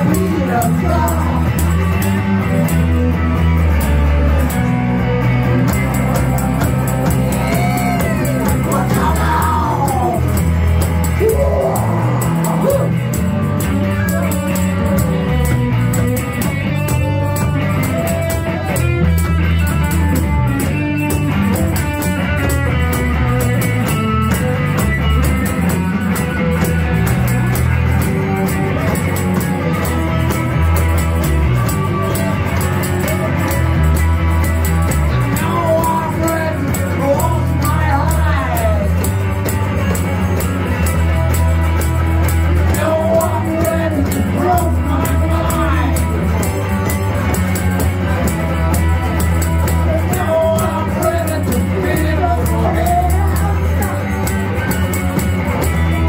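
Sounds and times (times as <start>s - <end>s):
person singing: 0.0s - 1.8s, 7.0s - 13.1s, 35.1s - 39.1s, 42.6s - 46.5s, 49.6s - 54.5s
live rock band playing: 0.0s - 56.0s
sliding guitar notes: 0.0s - 56.0s.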